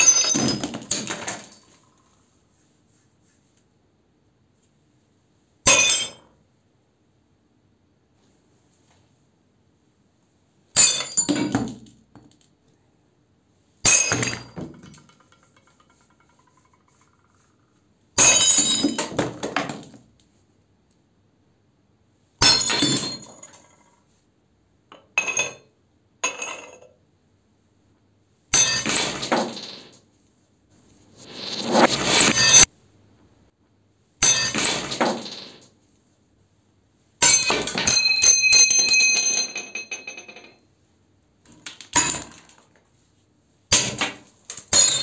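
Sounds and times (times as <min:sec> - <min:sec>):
shards clattering: 0:00.0 - 0:01.9, 0:13.9 - 0:17.2, 0:28.5 - 0:30.0, 0:31.2 - 0:32.7, 0:34.2 - 0:35.7, 0:37.2 - 0:40.5
cups breaking under hammer blows: 0:43.7 - 0:45.0.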